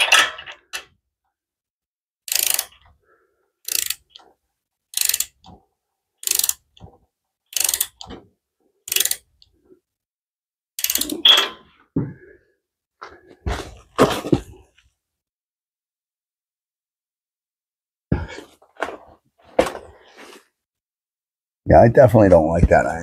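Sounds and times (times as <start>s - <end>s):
ratchet wrench clicking: 2.3s - 2.8s, 3.6s - 4.2s, 4.9s - 5.5s, 6.2s - 6.7s, 7.5s - 8.1s, 8.9s - 9.3s, 10.8s - 11.2s.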